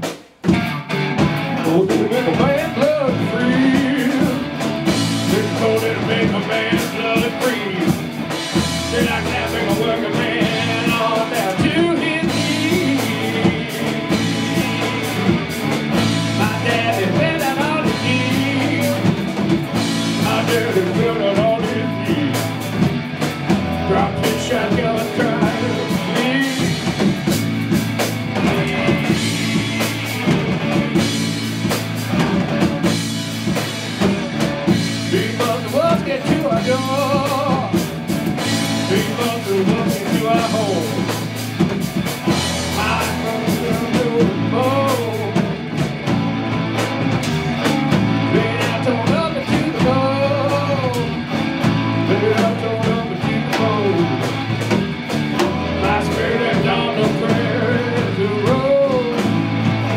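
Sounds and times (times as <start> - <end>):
drum kit: 0.0 - 59.9
electric guitars: 0.0 - 59.9
man singing: 1.5 - 27.4, 28.3 - 31.3, 34.0 - 41.4, 42.2 - 45.9, 47.4 - 54.7, 55.4 - 59.9.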